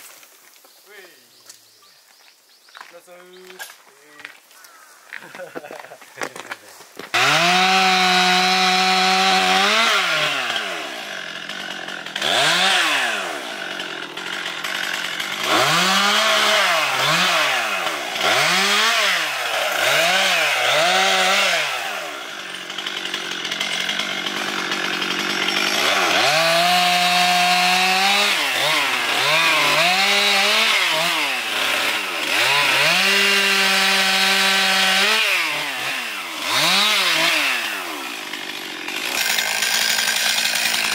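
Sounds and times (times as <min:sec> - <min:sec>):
chainsaw revving: 0:07.1 - 0:40.9.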